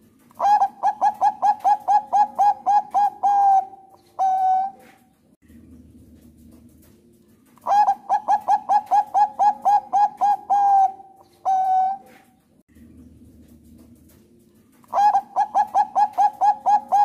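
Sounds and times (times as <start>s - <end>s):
dove cooing: 0.3s - 5.1s, 7.6s - 12.4s, 14.6s - 17.0s.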